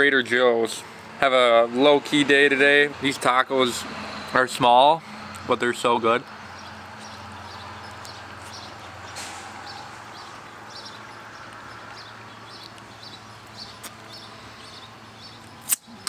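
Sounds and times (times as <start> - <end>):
small bird chirping: 6.6 - 16.0.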